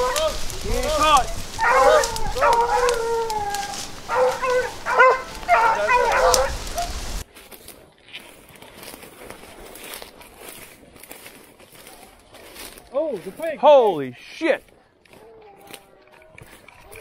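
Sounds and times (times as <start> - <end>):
dogs barking and baying: 0.0 - 0.6, 1.2 - 7.0, 14.7 - 17.0.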